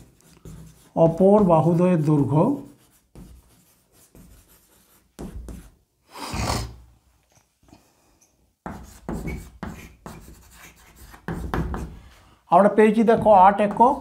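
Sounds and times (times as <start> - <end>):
chalk scratching on blackboard: 0.0 - 5.8, 8.6 - 12.0
chalk tapping on blackboard: 0.0 - 5.8, 8.6 - 12.0, 13.0 - 14.0.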